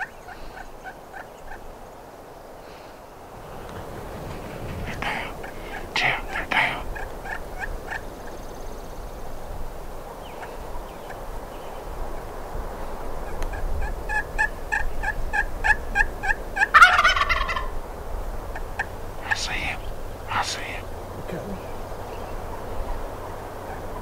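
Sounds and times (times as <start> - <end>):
turkey gobbling: 3.4 - 6.0, 6.9 - 8.4, 14.1 - 17.8
turkey call hen yelps: 14.1 - 17.7.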